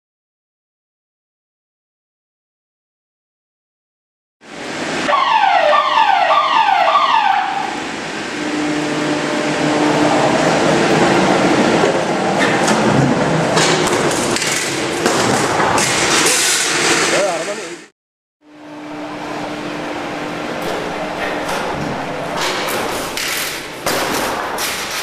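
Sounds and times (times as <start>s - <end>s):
steady mechanical hum: 4.4s - 25.0s
falling-pitch warning alarm tones: 4.5s - 12.4s.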